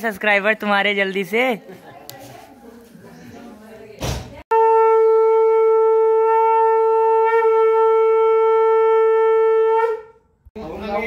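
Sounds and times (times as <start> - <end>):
conch shell blown: 4.5 - 10.3.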